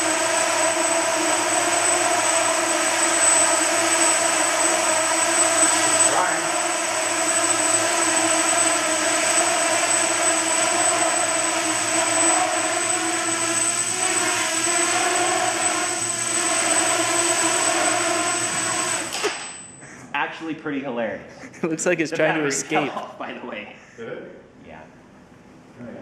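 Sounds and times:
quadcopter motors buzzing: 0.0s - 19.8s.

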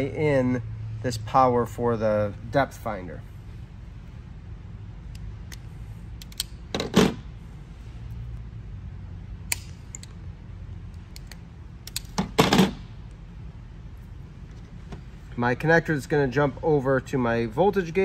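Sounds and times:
loud handling noises: 5.4s - 7.4s, 11.0s - 13.1s
pliers clicking and snipping wire: 6.2s - 6.6s, 9.5s - 10.2s, 10.9s - 12.4s.

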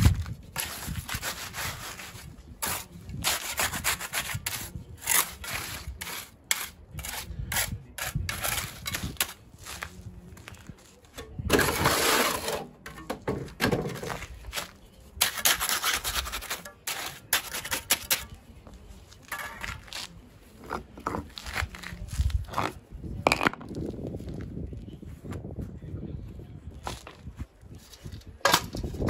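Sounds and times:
trowel scraping wet concrete: 0.0s - 10.0s, 10.9s - 13.0s, 13.6s - 22.8s.

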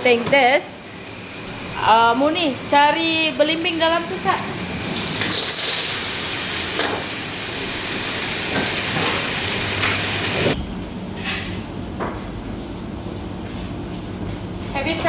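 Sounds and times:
snails sizzling in a wok: 0.6s - 10.6s.

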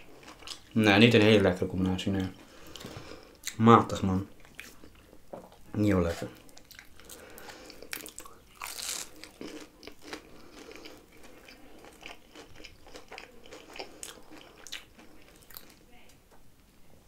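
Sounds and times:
chewing crunchy pastry: 0.0s - 3.6s, 6.1s - 15.8s.

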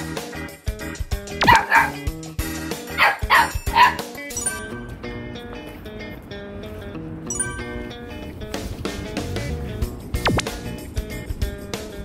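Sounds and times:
background music: 0.0s - 12.0s
puppy yapping: 1.4s - 2.1s, 2.9s - 4.0s.

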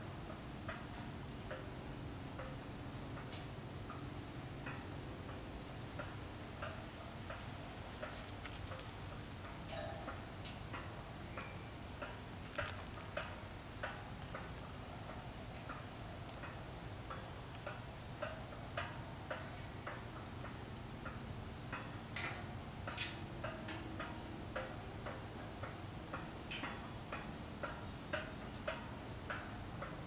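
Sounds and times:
prayer wheel ticking: 0.0s - 30.0s.

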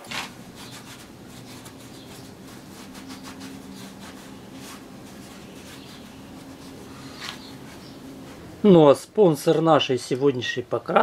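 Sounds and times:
cloth rag scrubbing metal: 0.0s - 8.4s
faint steady hum: 0.0s - 11.0s.

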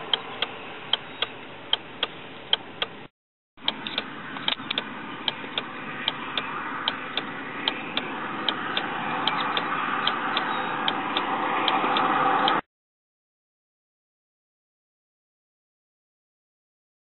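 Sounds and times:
mechanical tick-tock clicking: 0.1s - 3.0s, 3.6s - 12.6s.

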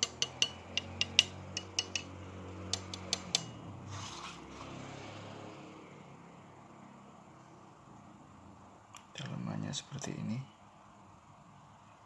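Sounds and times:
fingers tapping metal plate: 0.0s - 3.6s
rustle of device turned over: 3.9s - 4.8s.

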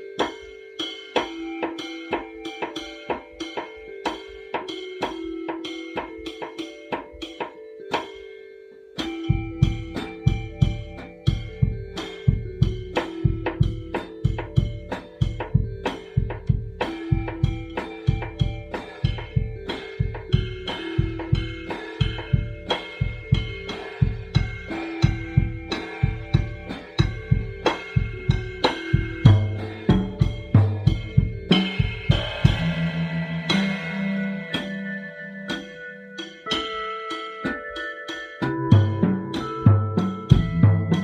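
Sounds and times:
drum kit groove: 0.0s - 8.4s, 9.0s - 41.0s
cymbal crash: 20.7s - 36.7s.

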